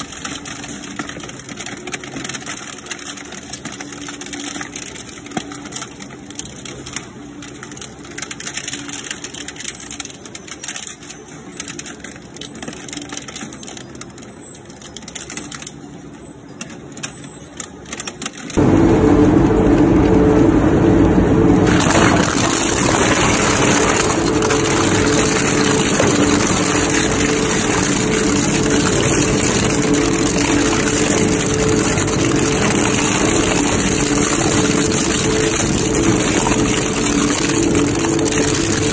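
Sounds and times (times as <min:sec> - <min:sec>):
shredder crunching plastic: 0:00.0 - 0:10.9, 0:21.5 - 0:38.9
machine drone with hum: 0:00.0 - 0:38.9.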